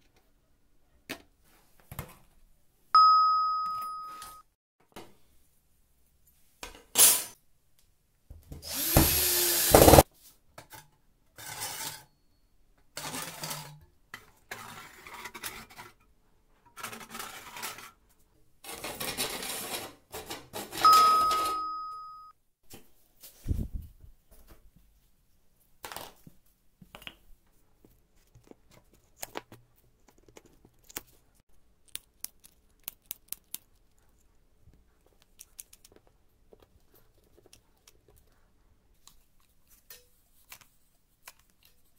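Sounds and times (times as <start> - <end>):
ding: 3.0 - 4.5, 12.1 - 12.5, 20.8 - 22.4.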